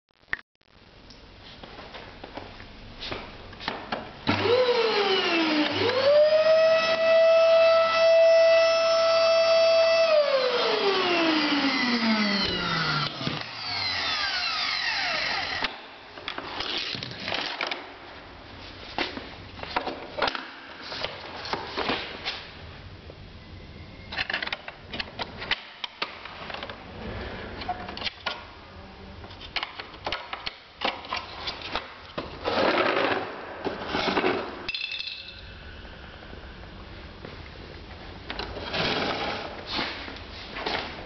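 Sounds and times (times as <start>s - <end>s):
vacuum cleaner motor whining: 4.3s - 15.8s.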